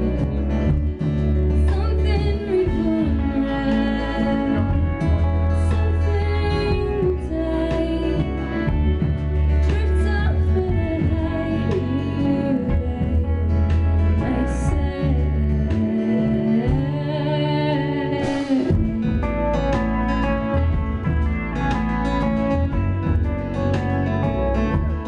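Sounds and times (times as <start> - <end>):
acoustic guitar: 0.0 - 25.0
cello: 0.0 - 25.0
drums: 0.0 - 25.0
electric guitar: 0.0 - 25.0
woman singing: 1.5 - 20.2.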